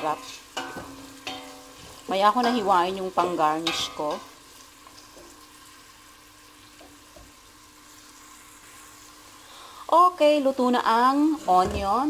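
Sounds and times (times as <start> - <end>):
onion sizzling in oil: 0.0 - 12.0.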